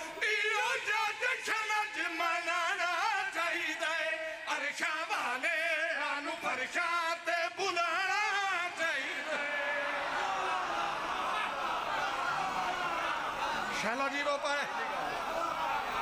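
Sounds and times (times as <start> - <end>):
man singing into microphone: 0.0 - 9.8
men chanting: 7.8 - 14.0.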